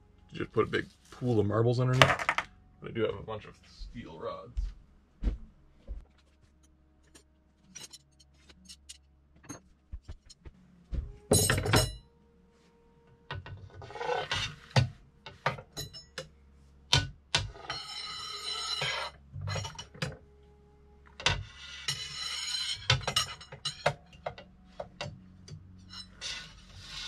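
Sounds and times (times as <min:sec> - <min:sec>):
ringing metal clink: 0:11.3 - 0:12.0, 0:15.7 - 0:16.3
metal rubbing and sliding: 0:13.3 - 0:16.2, 0:17.4 - 0:20.2, 0:21.1 - 0:25.2, 0:25.8 - 0:27.0
steel rods clicking and knocking: 0:16.9 - 0:20.2, 0:21.1 - 0:27.0
metallic clatter: 0:21.2 - 0:25.2.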